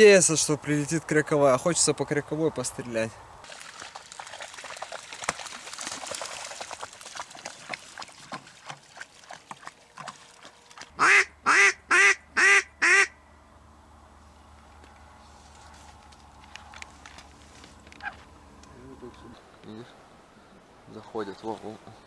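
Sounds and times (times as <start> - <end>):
water sloshing and splashing: 3.4 - 11.0
duck quacking: 11.0 - 13.2.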